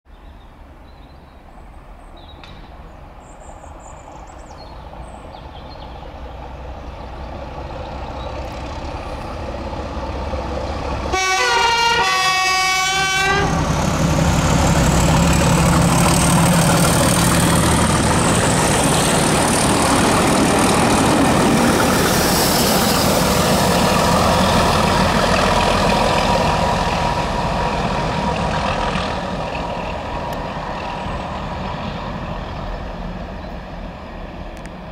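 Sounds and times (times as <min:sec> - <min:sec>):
wheels rumbling on rail: 0:00.2 - 0:34.9
diesel locomotive engine: 0:01.4 - 0:34.9
train horn: 0:11.1 - 0:13.7.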